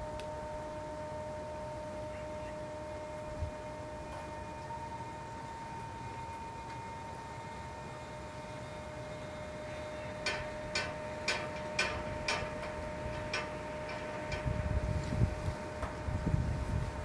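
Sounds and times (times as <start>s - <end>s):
faint steady whine: 0.0s - 17.0s
low gusty rumble: 0.0s - 17.0s
metal ticking: 10.2s - 14.6s.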